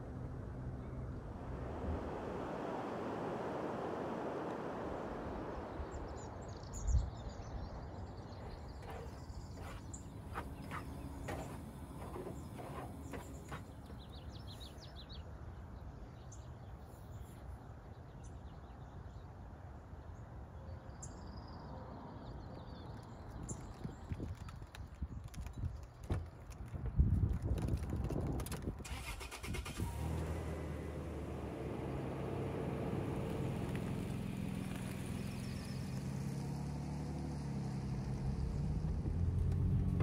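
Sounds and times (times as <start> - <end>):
low outdoor rumble: 0.0 - 15.1, 29.9 - 40.0
small birds chirping: 5.6 - 15.4.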